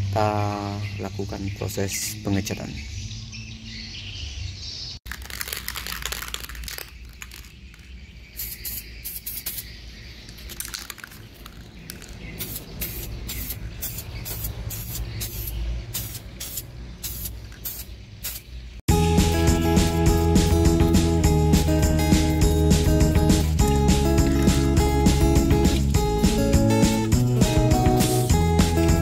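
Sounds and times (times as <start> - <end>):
spray can hissing: 5.1 - 9.7, 10.4 - 18.5, 22.8 - 28.7.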